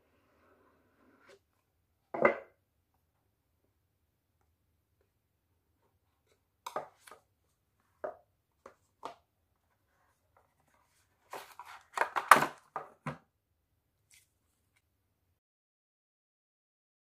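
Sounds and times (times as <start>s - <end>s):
cardboard rustling: 10.0s - 13.0s.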